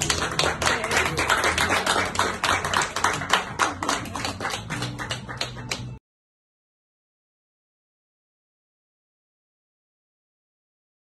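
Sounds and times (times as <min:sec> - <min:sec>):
small group applauding: 0:00.0 - 0:06.0.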